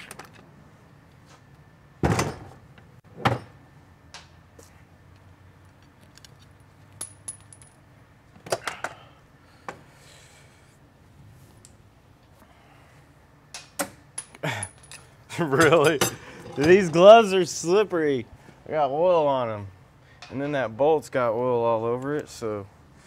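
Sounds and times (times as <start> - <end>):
metal tools clanking: 14.2 - 17.3.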